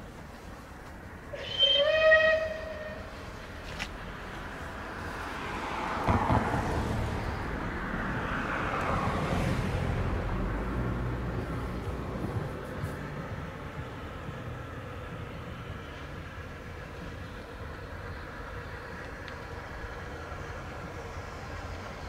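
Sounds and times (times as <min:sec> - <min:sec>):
train passing with rumble: 0:00.0 - 0:22.0
train horn blast: 0:01.3 - 0:03.3.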